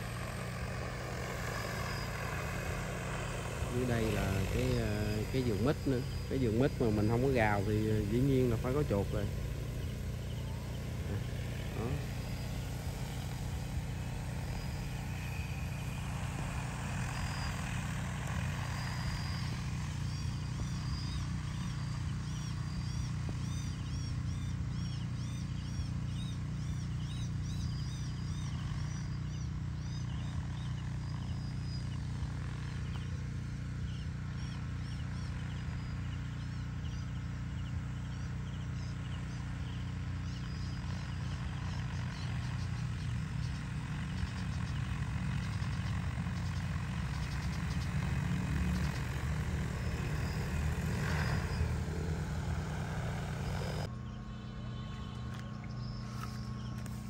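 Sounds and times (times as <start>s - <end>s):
drone rotors humming: 0.0s - 57.0s.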